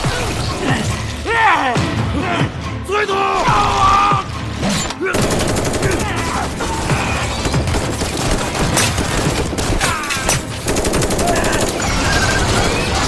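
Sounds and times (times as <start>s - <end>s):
people shouting: 1.2s - 4.4s, 5.0s - 7.5s, 9.6s - 10.4s, 11.0s - 13.0s
rapid automatic gunfire: 5.1s - 10.0s, 10.6s - 13.0s.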